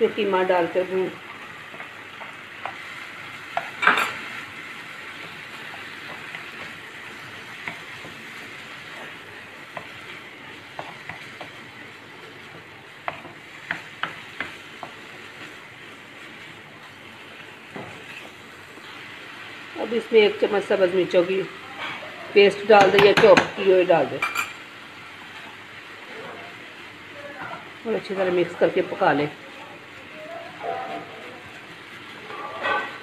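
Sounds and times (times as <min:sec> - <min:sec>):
meat sizzling in a frying pan: 0:00.0 - 0:33.0
spatula stirring and scraping: 0:01.2 - 0:19.0, 0:31.5 - 0:33.0.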